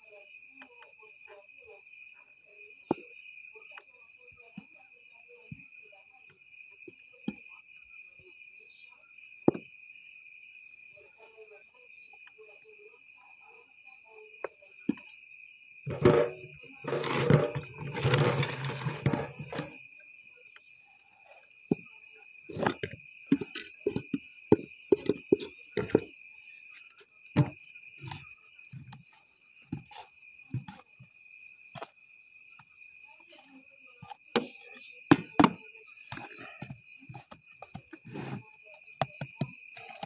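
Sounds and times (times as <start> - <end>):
crickets chirring: 0.0 - 40.0
cooking utensils knocking and scraping: 15.9 - 19.8, 22.5 - 26.1.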